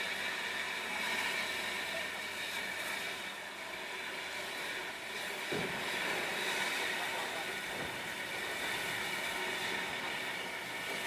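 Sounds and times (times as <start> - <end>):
steam locomotive hissing: 3.7 - 11.0.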